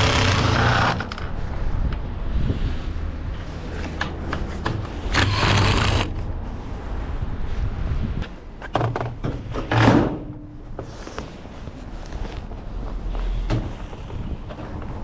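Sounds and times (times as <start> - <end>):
low rumble: 5.9 - 8.2.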